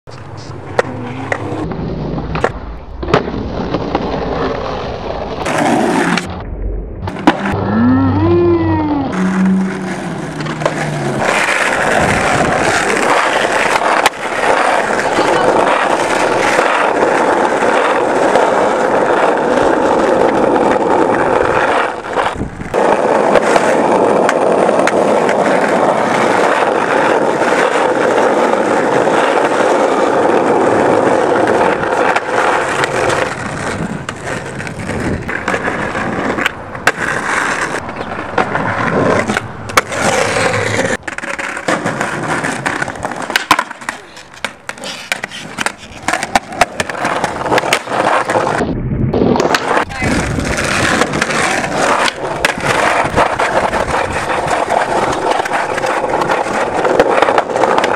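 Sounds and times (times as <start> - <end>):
skateboard wheels rolling on asphalt: 0.1 - 57.9
skateboard knocks: 31.5 - 48.4.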